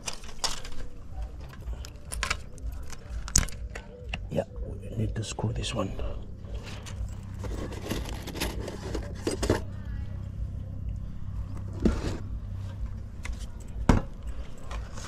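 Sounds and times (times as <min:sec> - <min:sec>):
steady low hum: 0:00.0 - 0:15.0
metal clinks and knocks: 0:06.5 - 0:09.7, 0:12.7 - 0:15.0.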